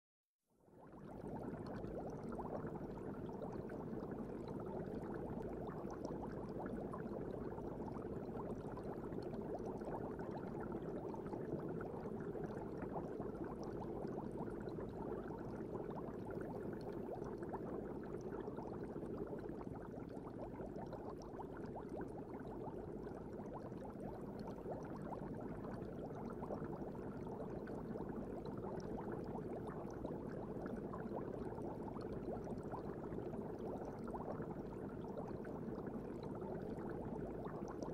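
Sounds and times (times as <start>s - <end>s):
water bubbling in fish tank: 0.7s - 37.9s
bubbles popping: 1.0s - 37.9s.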